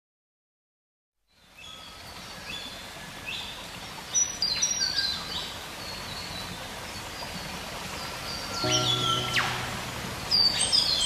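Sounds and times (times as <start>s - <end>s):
steady outdoor hiss: 1.3s - 11.0s
birds chirping: 8.6s - 11.0s.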